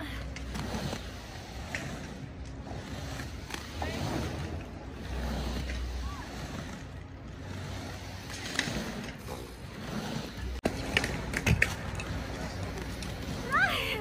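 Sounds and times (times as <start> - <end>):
roller skate wheels rumbling: 0.0 - 14.0.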